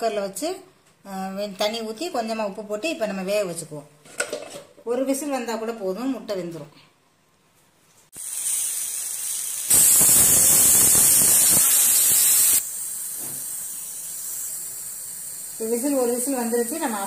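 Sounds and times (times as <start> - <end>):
pressure cooker whistling: 8.2 - 17.0.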